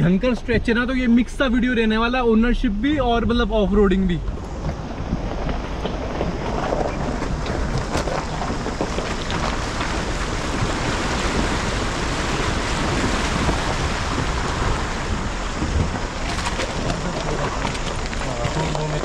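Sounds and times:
river water rushing and splashing: 4.2s - 19.0s.

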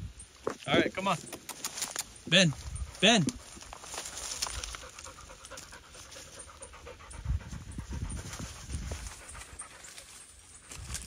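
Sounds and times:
dog panting: 2.7s - 10.7s.

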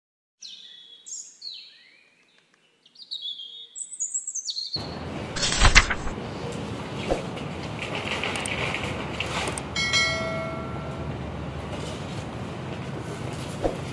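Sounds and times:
birds singing whistled phrases: 0.4s - 4.8s
steady rushing noise: 13.4s - 13.9s.

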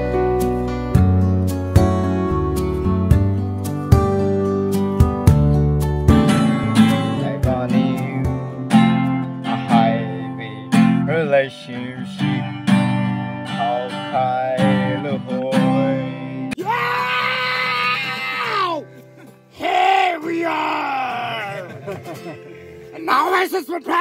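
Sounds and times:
acoustic guitar strumming: 0.0s - 16.6s, 18.7s - 24.0s
person singing: 6.6s - 8.6s, 9.4s - 12.6s, 13.5s - 18.8s.

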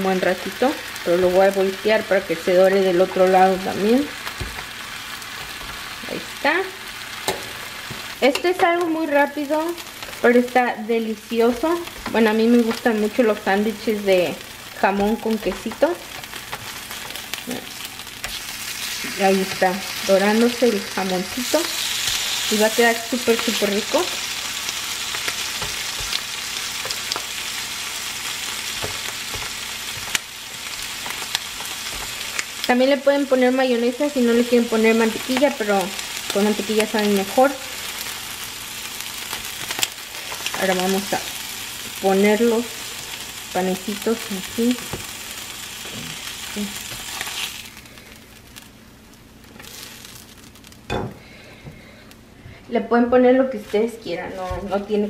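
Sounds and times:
food sizzling on a griddle: 0.0s - 51.0s.

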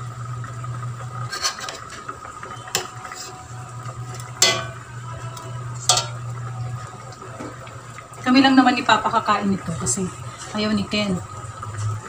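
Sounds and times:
induction cooker hum: 0.0s - 12.0s
metal spoon clinking on pot: 4.4s - 4.8s, 5.9s - 6.2s.

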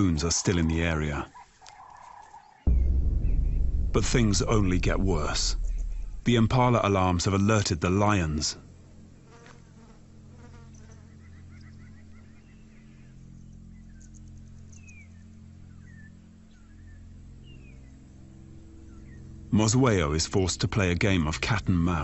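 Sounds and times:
low steady hum: 2.7s - 8.4s.

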